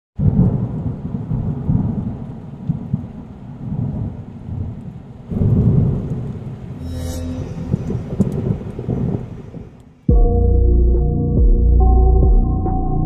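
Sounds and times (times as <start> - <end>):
steady rain: 0.2 - 6.8, 7.8 - 10.1
thunder rumbling: 0.2 - 10.5.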